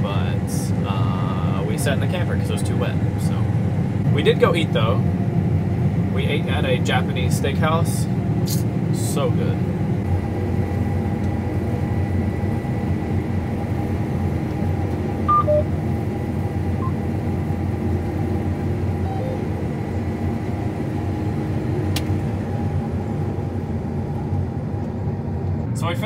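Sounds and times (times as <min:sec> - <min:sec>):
combine harvester droning: 0:00.0 - 0:26.0
short blips: 0:15.3 - 0:15.7
click: 0:21.9 - 0:22.1.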